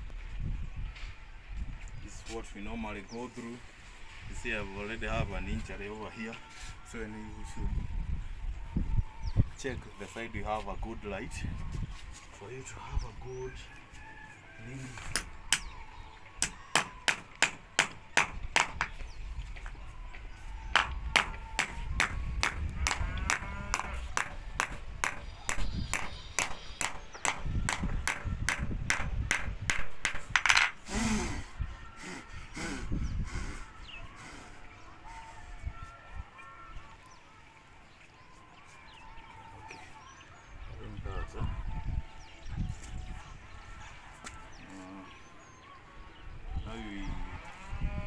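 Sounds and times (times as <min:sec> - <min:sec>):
birds calling: 0:01.9 - 0:48.0
sharp knocks: 0:20.8 - 0:30.7.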